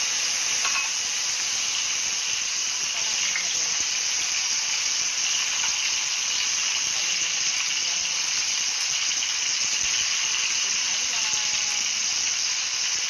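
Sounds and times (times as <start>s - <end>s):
omelette sizzling in hot oil: 0.0s - 13.0s.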